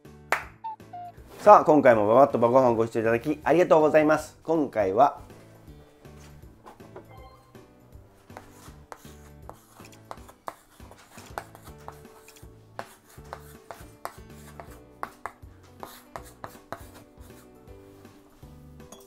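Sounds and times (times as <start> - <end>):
chalk tapping on chalkboard: 8.3 - 17.5.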